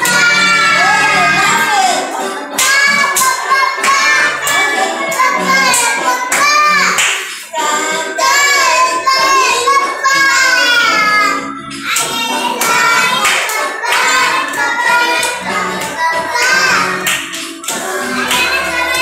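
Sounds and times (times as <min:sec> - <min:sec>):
high voice singing: 0:00.0 - 0:19.0
music with steady beat: 0:11.6 - 0:19.0.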